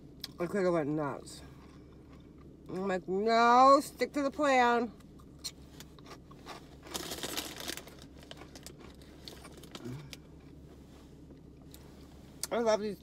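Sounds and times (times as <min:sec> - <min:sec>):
snack bag crinkling: 0:05.8 - 0:10.1.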